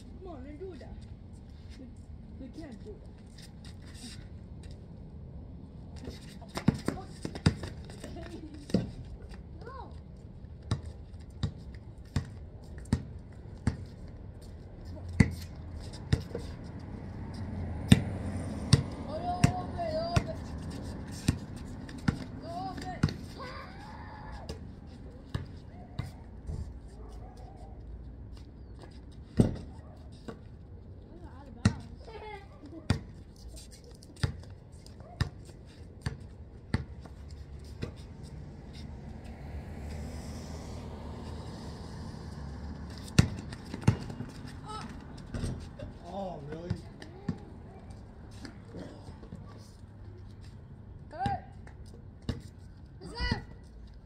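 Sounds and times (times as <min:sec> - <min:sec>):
basketball bouncing on concrete: 0:06.4 - 0:09.0, 0:10.6 - 0:14.0, 0:15.1 - 0:16.5, 0:17.8 - 0:23.4, 0:29.3 - 0:29.7, 0:31.5 - 0:32.2, 0:32.8 - 0:33.2, 0:34.2 - 0:37.1, 0:43.0 - 0:45.7, 0:46.4 - 0:47.5.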